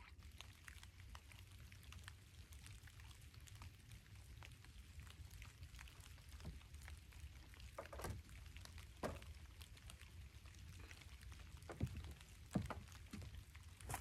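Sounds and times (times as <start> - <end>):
light rain pattering on pond: 0.0 - 14.0
dull knocks on dock boards: 9.0 - 9.3, 11.6 - 13.3.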